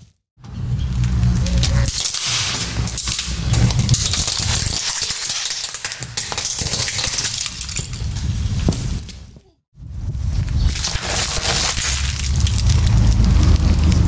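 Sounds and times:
plastic toy cracking and crunching: 1.6s - 8.1s, 10.7s - 14.0s.

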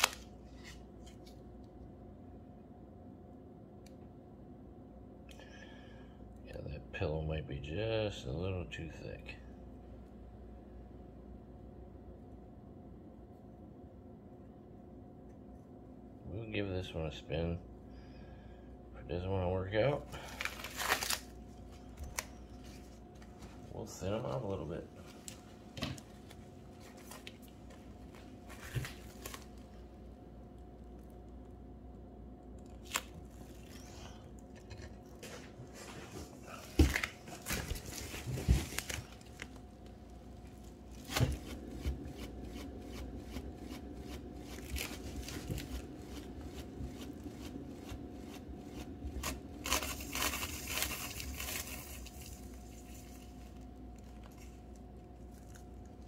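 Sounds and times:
faint steady hum: 0.0s - 56.0s
plastic crinkling: 20.2s - 23.4s, 48.8s - 56.0s.

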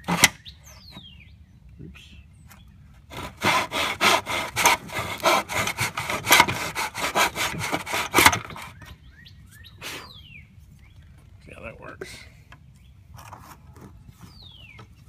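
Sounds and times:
hand saw cutting: 0.0s - 0.4s, 3.1s - 8.8s.

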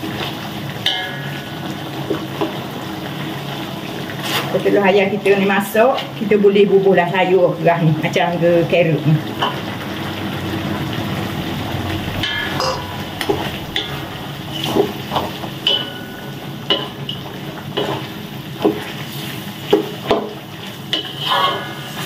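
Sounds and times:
sauce sizzling in wok: 0.0s - 22.0s
wooden spatula scraping wok: 4.0s - 4.8s, 12.1s - 22.0s
metal clank: 12.2s - 17.2s.

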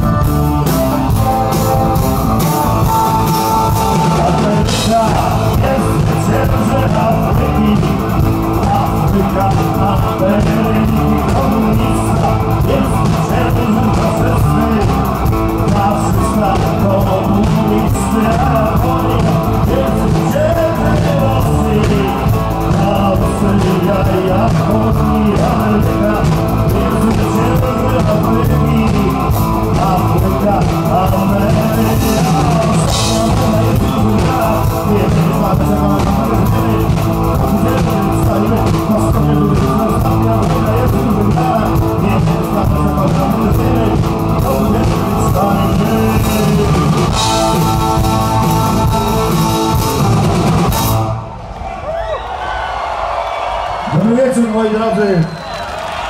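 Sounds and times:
person singing: 0.0s - 51.2s
live rock band playing: 0.0s - 51.6s.

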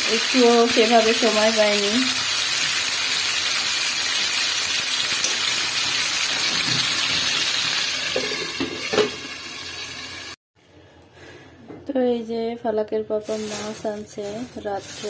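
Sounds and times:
curry sizzling in frying pan: 0.0s - 10.4s.

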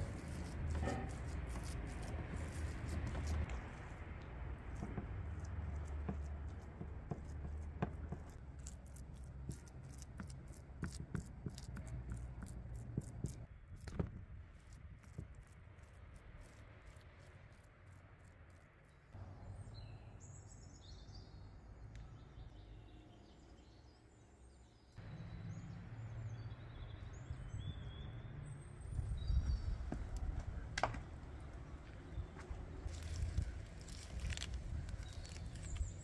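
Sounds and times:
low outdoor rumble: 0.0s - 20.2s
small birds chirping: 18.5s - 36.0s.

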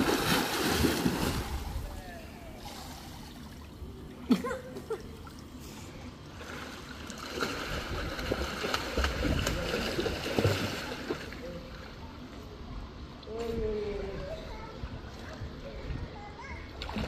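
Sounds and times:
pool water splashing: 0.0s - 12.6s.

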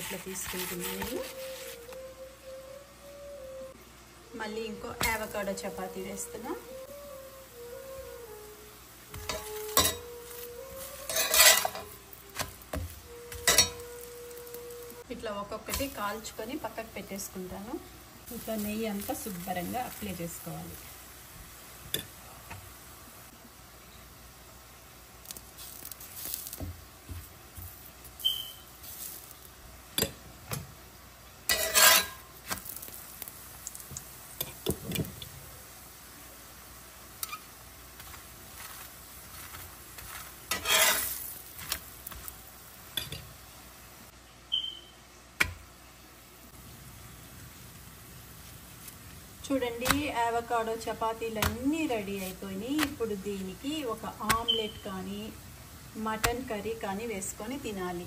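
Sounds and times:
metal spatula scraping pan: 0.0s - 1.8s, 9.2s - 12.5s, 13.3s - 14.5s, 31.5s - 32.3s, 40.5s - 41.3s
light sizzle: 0.0s - 58.0s.

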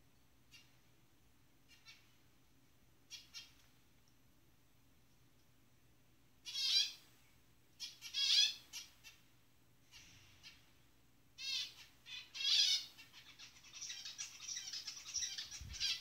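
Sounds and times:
finches calling: 6.5s - 7.0s, 7.8s - 9.2s, 11.4s - 16.0s.

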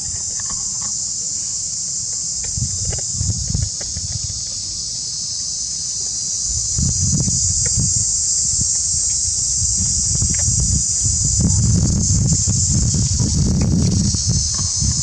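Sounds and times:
high-pitched insect chorus: 0.0s - 15.0s
low uneven rumble: 6.5s - 15.0s.

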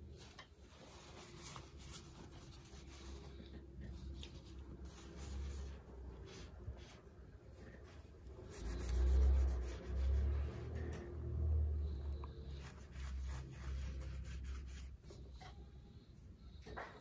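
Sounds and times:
tissue wiping ceramic bowl: 0.2s - 10.8s, 12.5s - 15.1s.

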